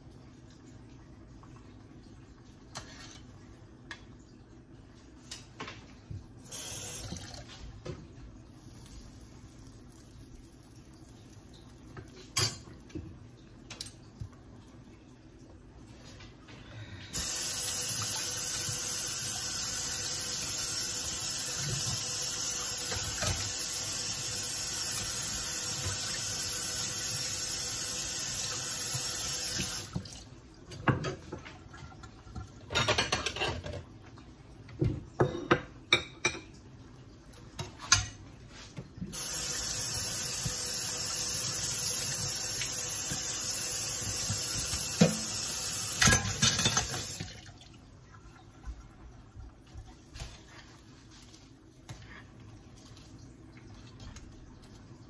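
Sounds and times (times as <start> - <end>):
kitchen tap running: 6.4 - 14.8, 17.1 - 33.8, 39.1 - 50.3
dishes clinking: 35.2 - 36.5.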